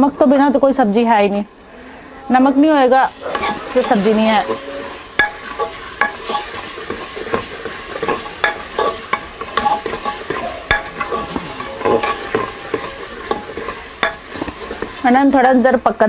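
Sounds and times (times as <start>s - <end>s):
masala sizzling: 2.3s - 16.0s
metal spoon scraping a pot: 3.2s - 15.2s.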